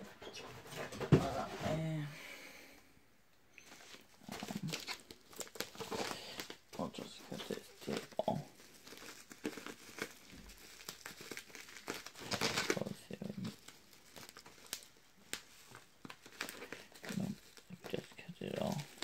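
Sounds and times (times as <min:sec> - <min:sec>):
bubble wrap crinkling: 0:03.6 - 0:19.0
packing tape tearing: 0:03.9 - 0:06.6, 0:07.3 - 0:19.0.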